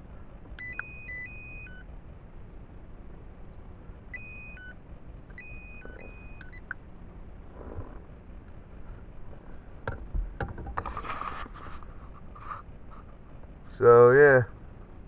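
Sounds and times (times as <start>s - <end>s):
short electronic beeps: 0.6s - 1.8s, 4.1s - 4.8s, 5.4s - 6.8s
rustle of handling: 10.8s - 13.8s.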